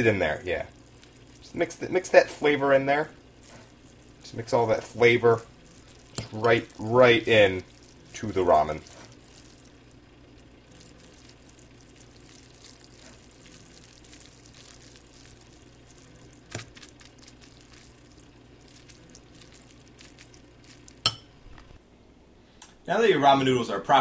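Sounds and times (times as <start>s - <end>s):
wet squishing of noodles: 0.0s - 21.8s
fork clinking against bowl: 21.0s - 21.4s.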